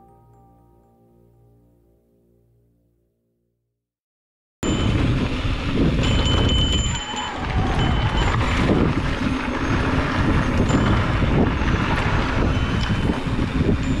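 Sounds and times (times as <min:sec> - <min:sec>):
thin high whine: 0:04.6 - 0:14.0
tyres rumbling over dirt: 0:04.6 - 0:14.0
wind buffeting microphone: 0:04.6 - 0:14.0.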